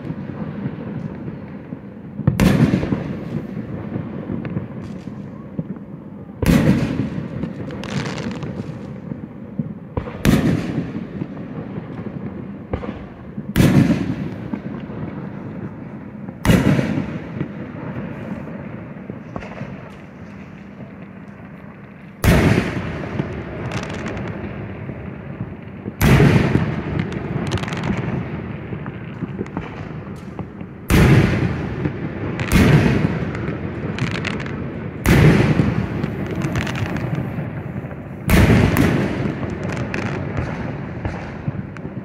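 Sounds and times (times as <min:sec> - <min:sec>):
firework shells booming: 0:00.0 - 0:42.0.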